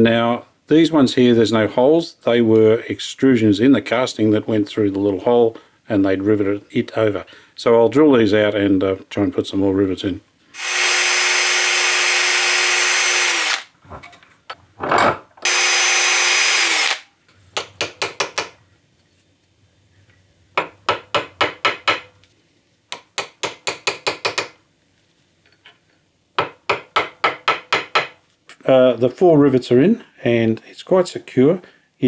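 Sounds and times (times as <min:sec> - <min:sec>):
electric drill running: 0:10.6 - 0:13.7, 0:15.4 - 0:17.1.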